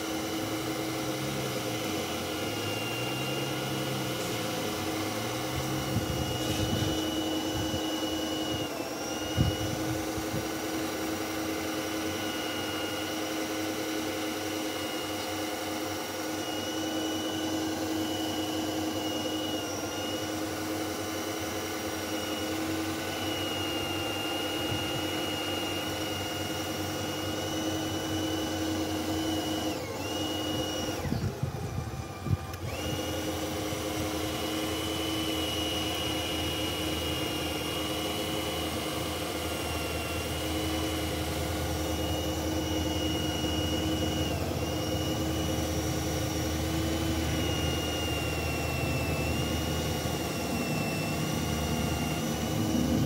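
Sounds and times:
electric motor whining: 0.0 - 53.0.

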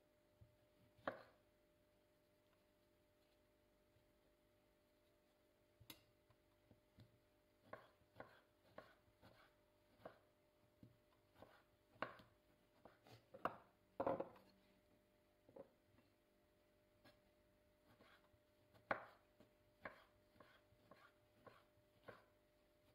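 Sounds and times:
ceramic bowl set on counter: 0.3 - 22.9
knife chopping on wooden board: 1.0 - 1.4, 7.0 - 14.4, 17.8 - 22.3.

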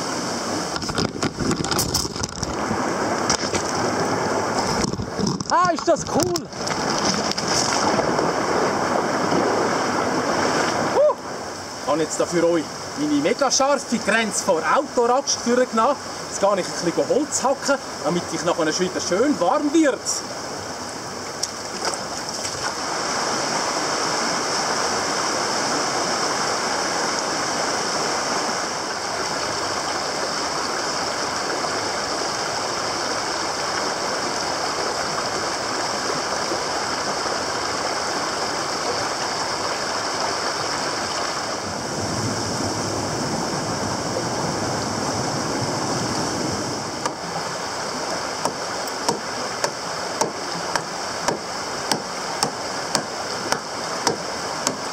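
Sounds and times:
stream rushing over rocks: 0.0 - 54.9
hatchet chopping wood: 48.4 - 54.9.

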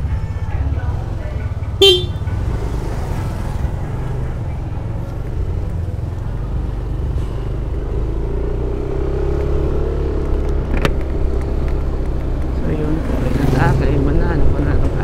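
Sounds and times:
scooter engine rumble: 0.0 - 8.3.

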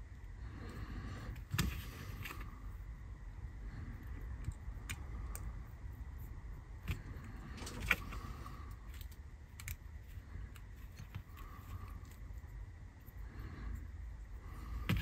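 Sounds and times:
small plastic parts clicking: 8.9 - 9.8.

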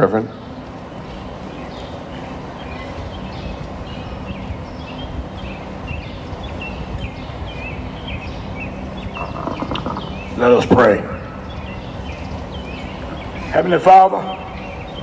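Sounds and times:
low rumble and hum: 0.0 - 15.0
small bird chirping: 1.0 - 10.4.

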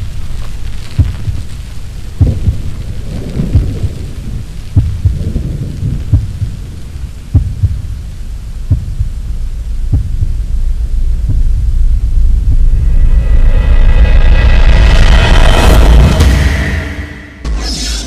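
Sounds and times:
rain hiss: 0.0 - 15.0
thunder rumbling: 0.0 - 17.4
deep thunder booms: 1.0 - 8.0.

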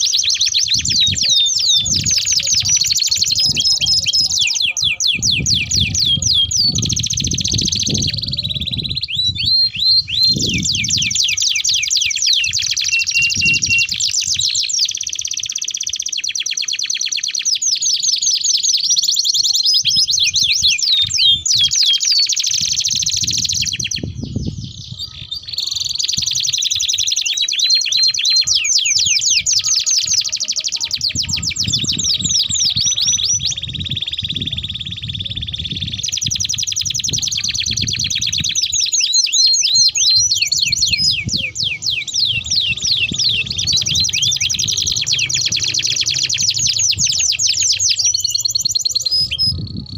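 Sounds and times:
canaries singing trills: 0.0 - 49.9.

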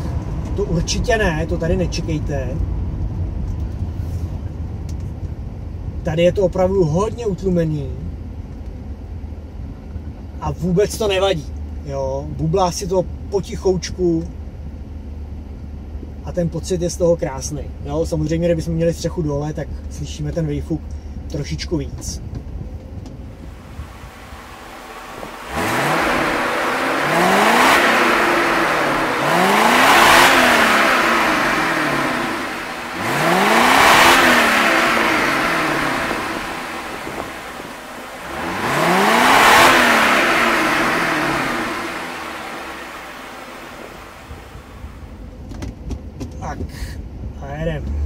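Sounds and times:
car engine revving: 23.2 - 45.4.

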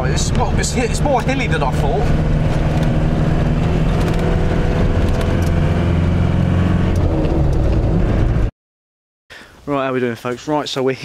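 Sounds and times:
car engine and road noise: 0.0 - 8.5.

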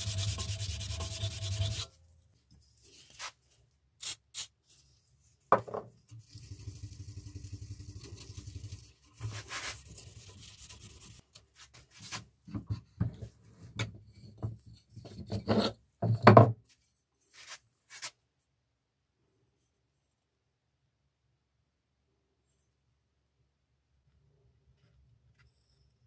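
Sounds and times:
abrasive pad rubbing knife blade: 0.0 - 1.9.

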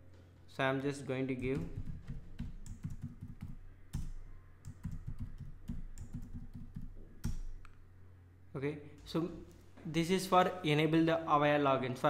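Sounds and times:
typing on computer keyboard: 1.4 - 7.6.

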